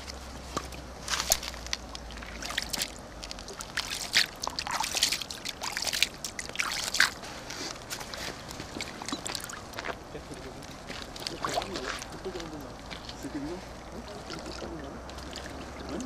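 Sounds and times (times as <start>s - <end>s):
water sloshing and splashing: 0.0s - 16.0s.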